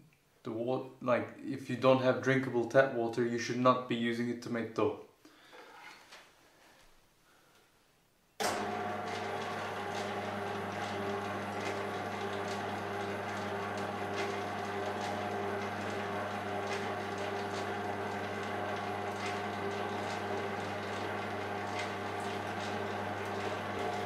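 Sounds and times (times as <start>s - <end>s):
mixer motor hum: 8.4s - 24.0s.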